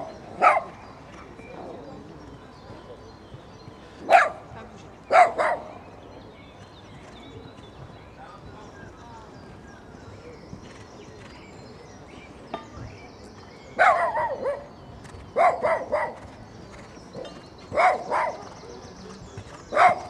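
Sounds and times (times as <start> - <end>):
dog barking: 0.4 - 0.8, 4.1 - 4.4, 5.1 - 5.8, 13.8 - 14.7, 15.4 - 16.2, 17.7 - 18.5, 19.7 - 20.0.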